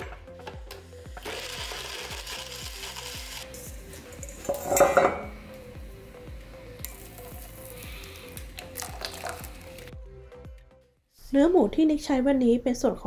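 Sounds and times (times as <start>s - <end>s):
light background music: 0.0s - 13.0s
metal bowl clattering: 4.1s - 5.4s.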